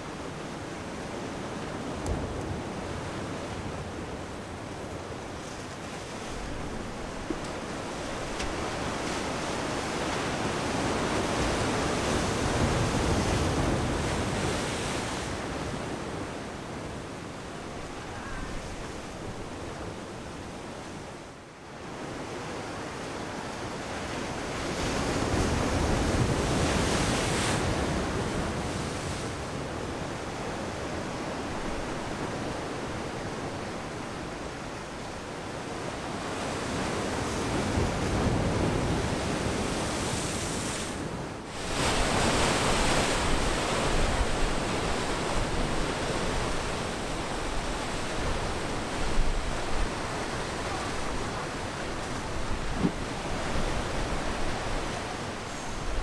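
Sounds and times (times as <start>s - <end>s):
waves washing over boulders: 35.8s - 56.0s
wind rumbling on microphone: 36.8s - 56.0s.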